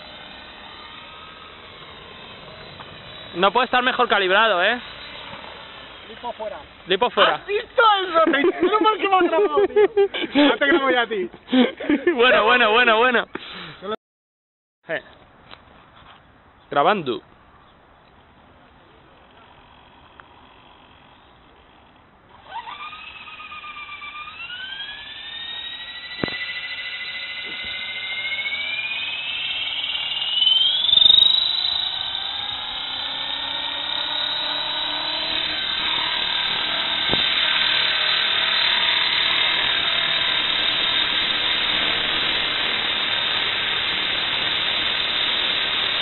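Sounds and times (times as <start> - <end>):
model helicopter rotor whine: 0.0 - 9.2, 18.7 - 46.0.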